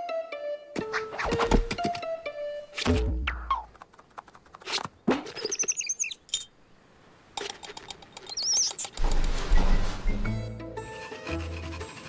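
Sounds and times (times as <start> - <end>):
high warbling squeaks: 4.7 - 6.5
rustling scrape: 9.0 - 12.0.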